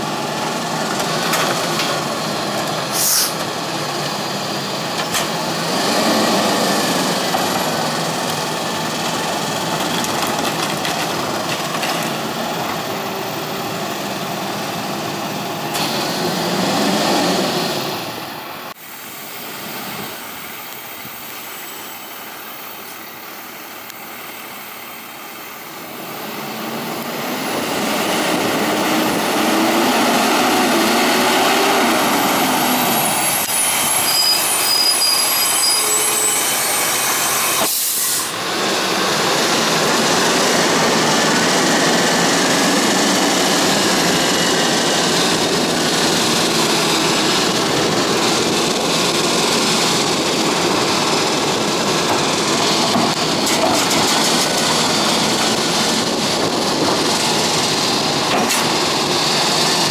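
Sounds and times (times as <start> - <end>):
refuse truck engine running: 0.0 - 34.7, 36.5 - 59.9
cart tipper emptying cart: 46.2 - 59.9.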